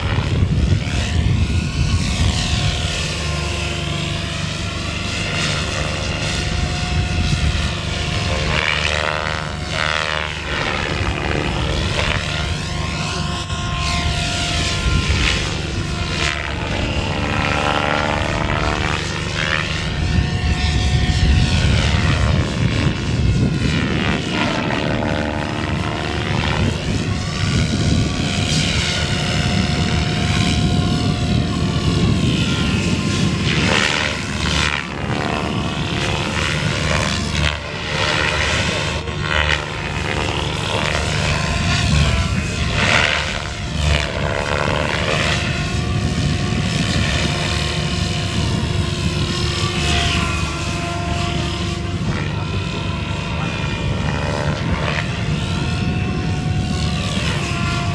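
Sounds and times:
rc helicopter motor whine: 0.0s - 57.9s.

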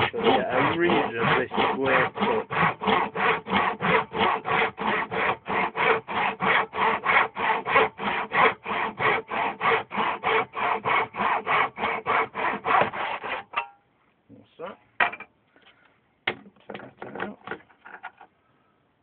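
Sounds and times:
hand saw cutting wood: 0.0s - 13.7s.

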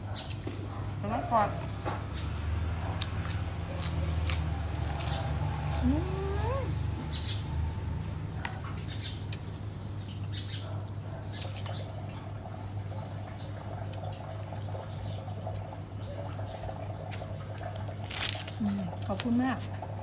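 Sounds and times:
person chewing and smacking: 2.8s - 5.8s.

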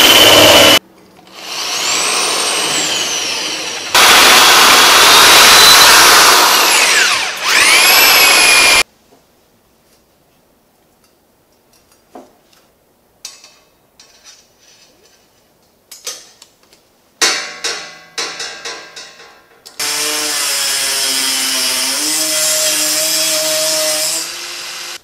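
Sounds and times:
rotary tool whining: 0.0s - 8.8s.

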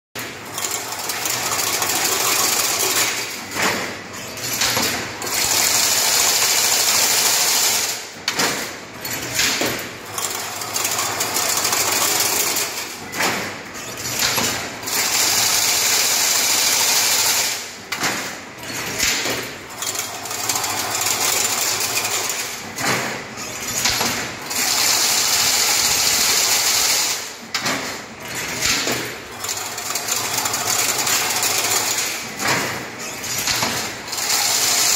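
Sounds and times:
fence weaving machine whirring: 0.2s - 34.9s
machine clattering knocks: 0.2s - 34.9s.

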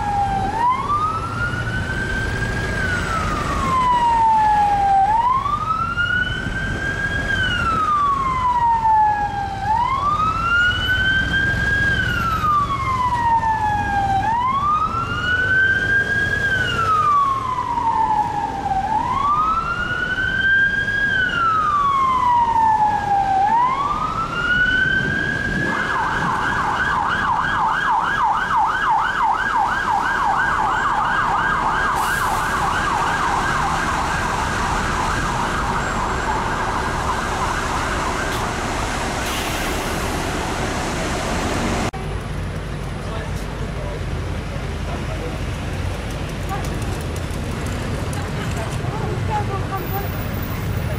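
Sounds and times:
police siren wailing and yelping: 0.0s - 38.5s
engine and road rumble: 0.0s - 50.9s.

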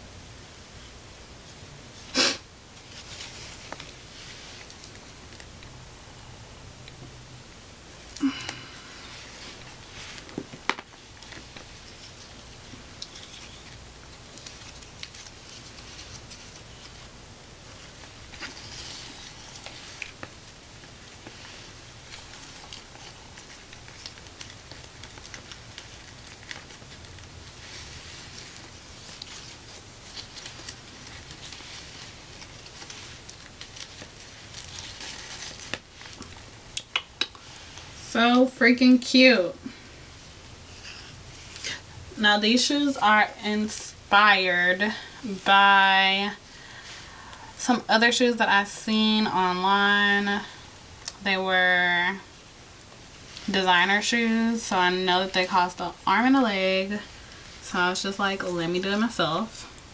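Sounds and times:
rustling and handling: 2.7s - 5.8s, 8.0s - 38.4s.

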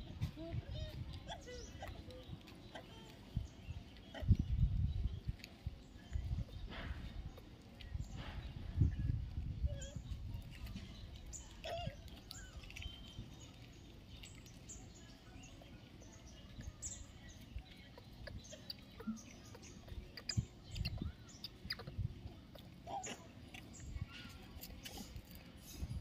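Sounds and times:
low rumble of wind: 0.0s - 26.0s
high chirps and squeaks: 16.8s - 26.0s.

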